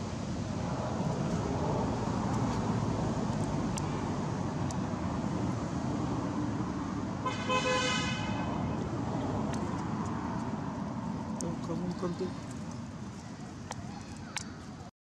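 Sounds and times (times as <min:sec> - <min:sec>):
road traffic rumble: 0:00.0 - 0:14.9
short vehicle horn toot: 0:07.3 - 0:08.5.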